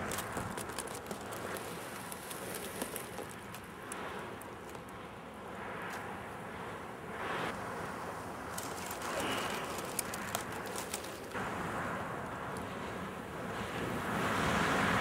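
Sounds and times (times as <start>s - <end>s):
steady outdoor hiss: 0.0s - 15.0s
small clicks: 8.5s - 11.4s.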